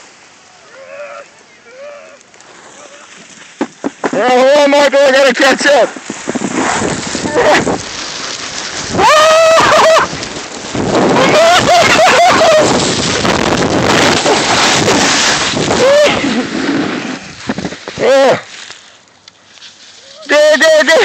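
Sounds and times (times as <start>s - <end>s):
person calling out: 0.6s - 2.2s, 18.0s - 18.5s, 20.2s - 21.0s
skis scraping over snow: 1.5s - 20.9s
wind on microphone: 6.0s - 18.1s.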